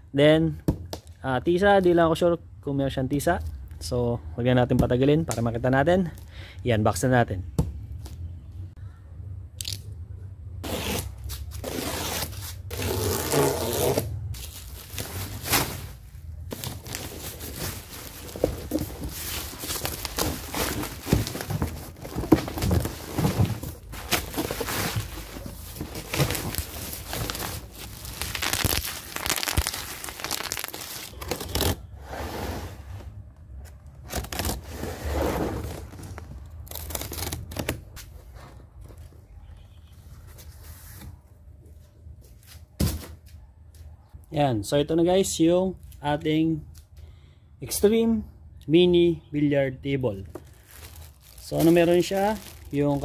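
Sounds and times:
plastic wrap rustling and tearing: 10.7 - 31.8, 35.6 - 37.8, 50.3 - 53.0.

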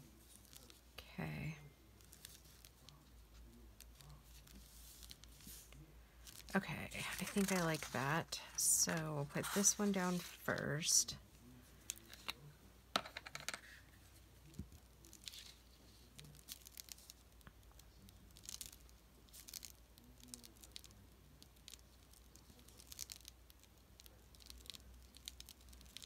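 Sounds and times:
paper rustling and scratching: 0.0 - 0.8, 2.0 - 10.7, 13.5 - 17.2.

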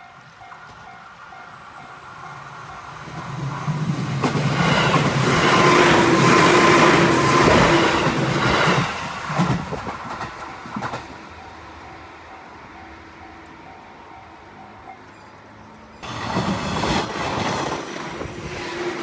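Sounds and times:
level crossing warning bell: 0.0 - 3.0
train passing: 0.0 - 19.0.

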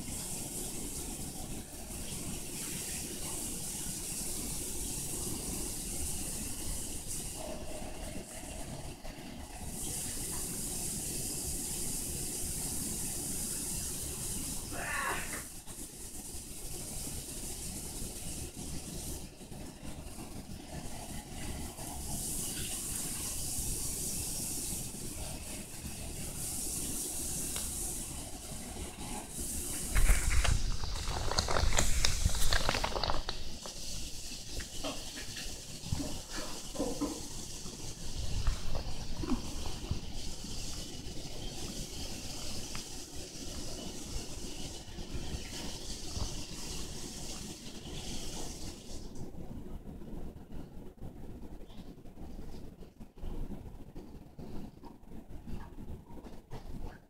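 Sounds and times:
steady hiss: 0.0 - 57.0
insect crunching shell: 30.4 - 33.4.

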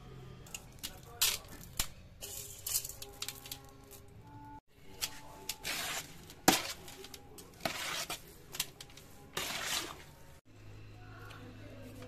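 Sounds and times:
spoon scraping metal bowl: 4.9 - 10.2.

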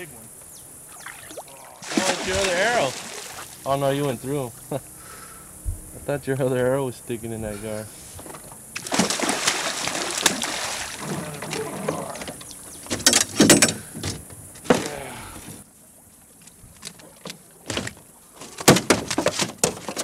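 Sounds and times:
fish splashing at surface: 1.0 - 3.6, 8.8 - 11.8
knocks against boat: 11.0 - 15.0, 17.2 - 20.0.

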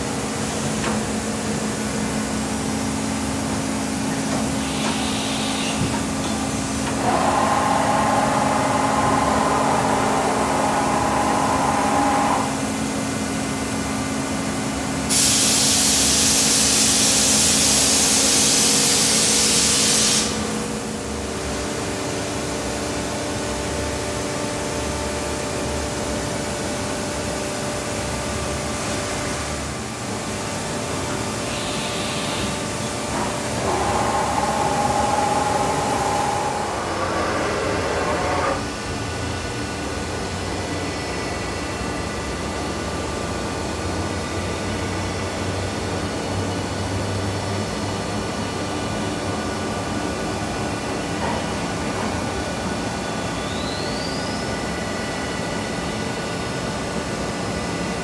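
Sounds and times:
machining center whining: 0.0 - 14.8, 29.5 - 42.5
loud steady hiss: 14.9 - 21.3.

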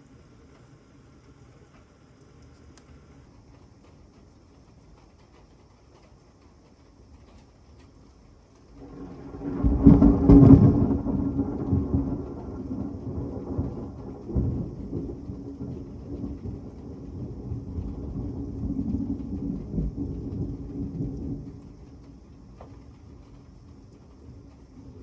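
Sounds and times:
heavy rain: 0.0 - 25.0
rolling thunder: 8.6 - 25.0.

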